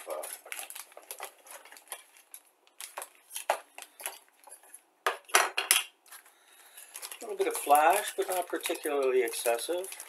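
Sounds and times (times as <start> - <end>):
plastic bag rustling: 0.0 - 4.8, 6.1 - 10.0
plastic parts clattering: 6.8 - 10.0.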